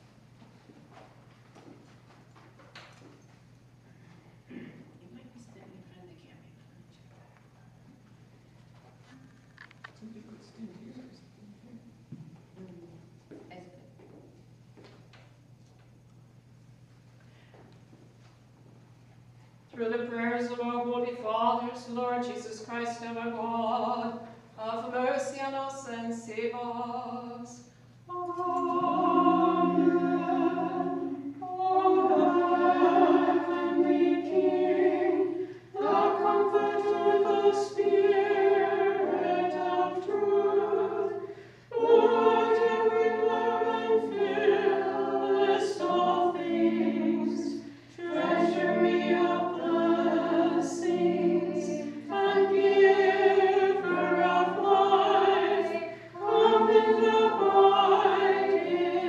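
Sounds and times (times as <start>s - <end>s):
unaccompanied choir chanting: 19.8s - 59.0s.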